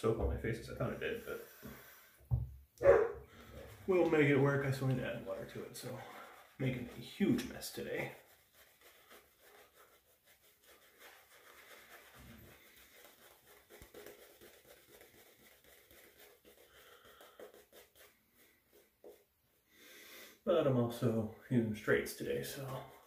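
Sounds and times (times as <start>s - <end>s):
shaving brush swishing: 3.4s - 19.2s, 22.1s - 23.0s.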